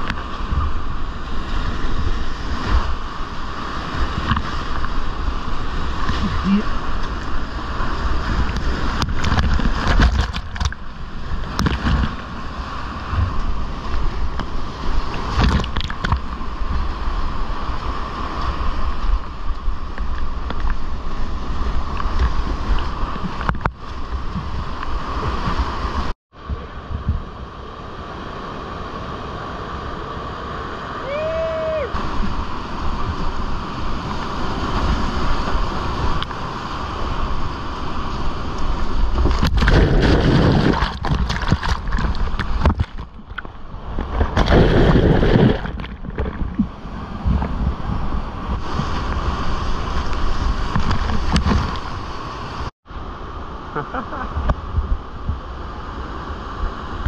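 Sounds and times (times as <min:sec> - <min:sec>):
whitewater rapids rushing: 0:28.3 - 0:42.7
water splashing close by: 0:38.4 - 0:52.7.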